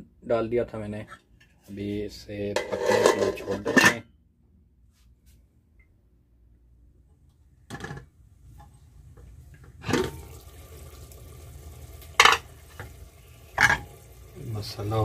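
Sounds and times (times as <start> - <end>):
pot lid clattering: 2.6 - 4.0, 12.2 - 12.5, 13.6 - 13.9
masala simmering in a pot: 8.4 - 15.0.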